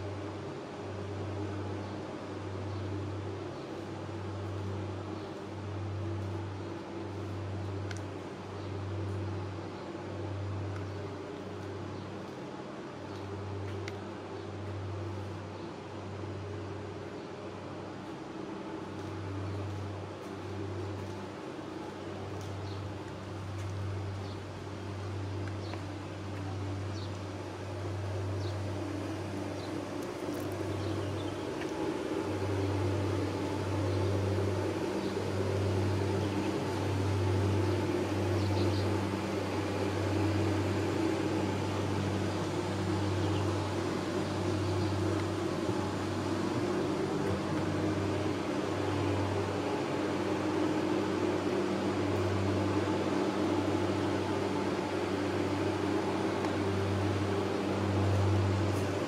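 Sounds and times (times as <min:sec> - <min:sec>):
low mechanical hum: 0:00.0 - 0:59.0
faint light ticks: 0:07.8 - 0:08.1, 0:13.1 - 0:14.8.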